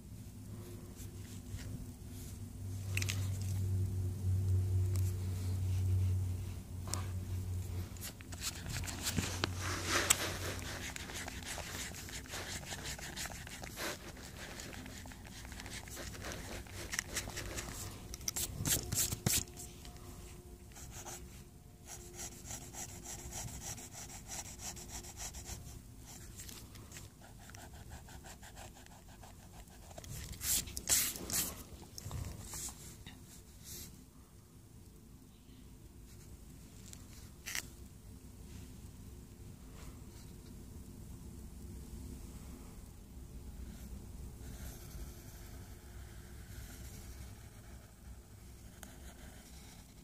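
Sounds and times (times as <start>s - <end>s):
paper rustling: 8.0s - 19.7s
pencil scratching on paper: 8.0s - 19.7s, 20.8s - 21.2s, 21.8s - 26.3s, 26.9s - 31.7s, 44.5s - 50.0s.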